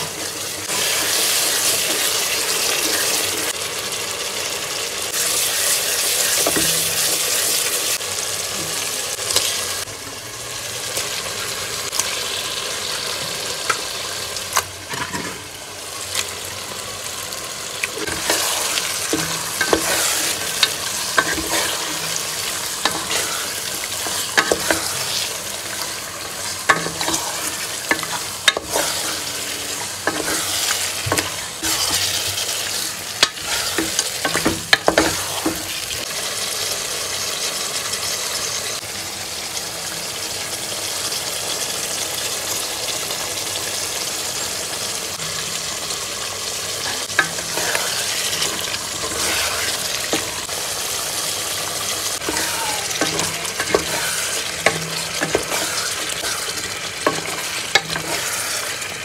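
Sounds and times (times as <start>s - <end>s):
meat sizzling in a pan: 0.0s - 59.0s.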